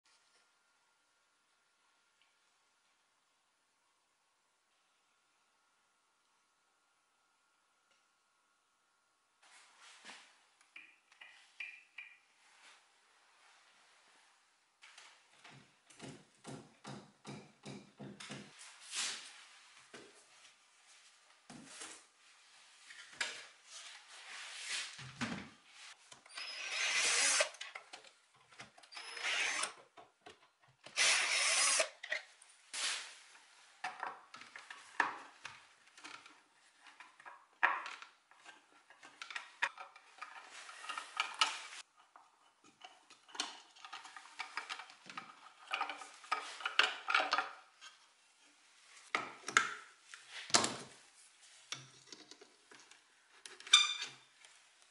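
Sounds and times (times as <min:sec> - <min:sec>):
power tool bursts: 0:31.0 - 0:31.9.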